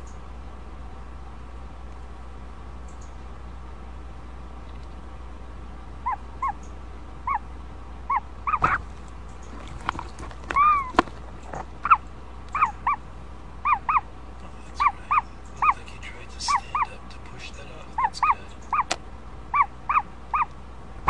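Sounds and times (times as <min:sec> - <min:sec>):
low steady hum: 0:00.0 - 0:21.0
sharp clicks: 0:02.8 - 0:03.2
chick chirping: 0:08.1 - 0:09.8, 0:10.5 - 0:13.0, 0:13.6 - 0:20.5.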